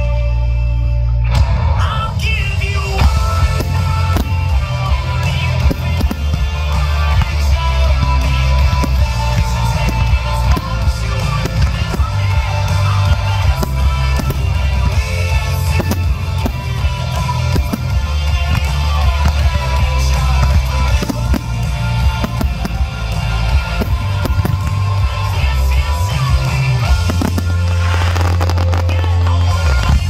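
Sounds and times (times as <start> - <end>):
music: 0.0 - 30.0
firework shells bursting: 3.2 - 25.7.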